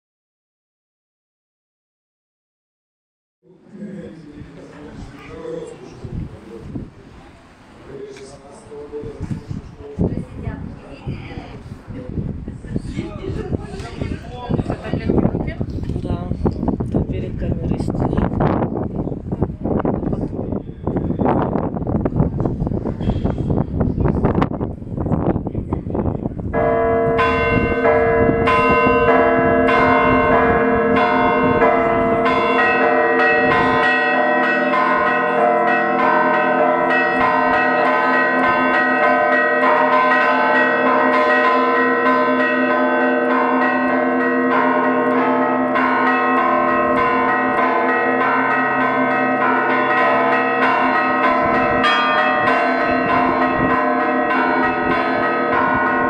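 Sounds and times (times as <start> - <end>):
church bells pealing: 26.5 - 56.0.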